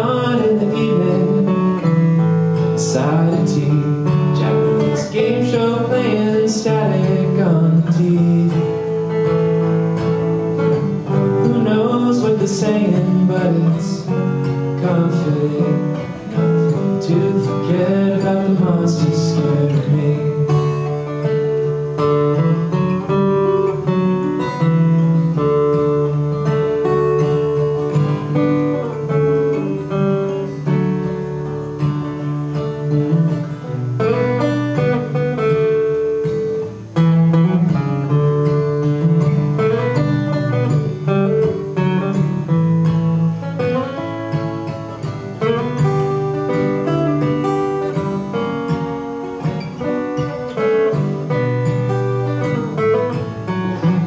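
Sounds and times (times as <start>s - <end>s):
man singing: 0.0s - 9.4s, 11.0s - 21.3s
acoustic guitars strummed and picked: 0.0s - 54.0s.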